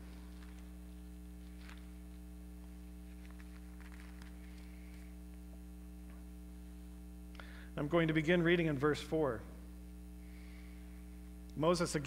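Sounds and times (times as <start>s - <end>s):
pages being turned: 0.0s - 0.7s, 1.4s - 2.3s, 3.0s - 5.2s
electrical mains hum: 0.0s - 12.0s.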